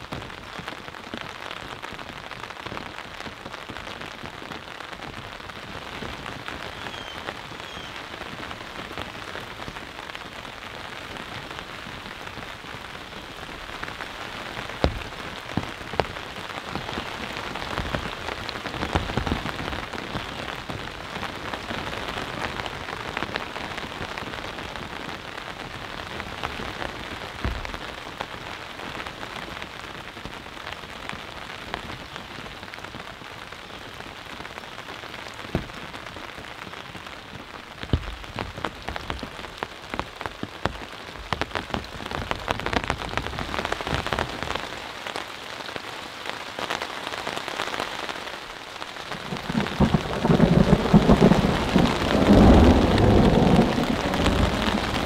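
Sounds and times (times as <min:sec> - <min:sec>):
steady rain falling: 0:00.0 - 0:55.0
raindrops ticking: 0:00.1 - 0:28.7, 0:46.6 - 0:55.0.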